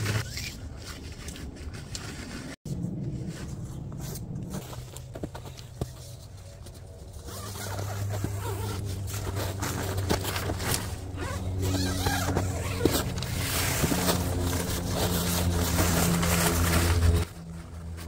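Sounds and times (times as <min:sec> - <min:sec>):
tent zipper rasping open: 0:00.0 - 0:02.6, 0:07.1 - 0:18.0
nylon fabric rustling: 0:03.2 - 0:18.0.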